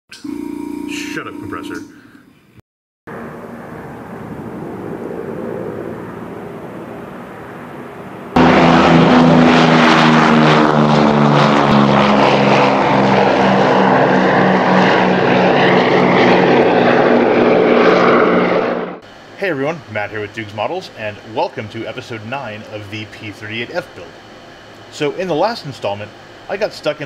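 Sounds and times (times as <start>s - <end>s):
propeller aircraft engines droning: 0.1s - 2.2s, 3.1s - 27.0s.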